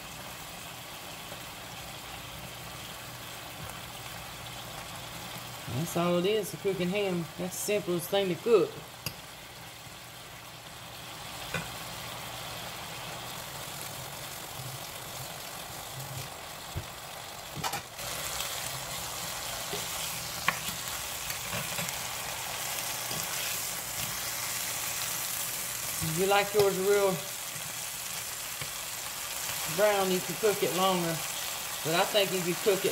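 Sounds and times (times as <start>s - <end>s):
ham sizzling in a frying pan: 0.0s - 32.9s.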